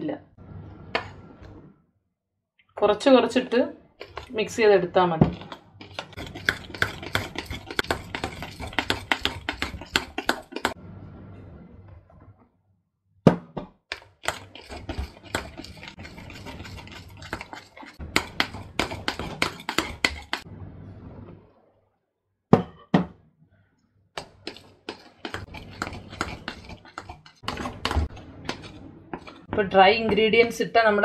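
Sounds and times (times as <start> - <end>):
metal spoon scraping mixing bowl: 3.4 - 10.8, 13.9 - 20.5, 24.2 - 30.9.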